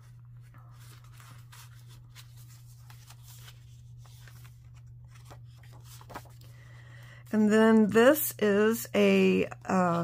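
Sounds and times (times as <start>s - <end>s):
page turning: 0.0s - 6.7s
paper rustling: 0.0s - 6.8s.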